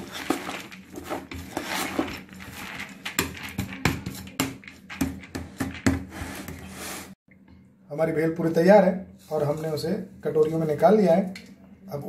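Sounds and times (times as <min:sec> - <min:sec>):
spoon stirring crunchy rice: 0:00.0 - 0:07.1.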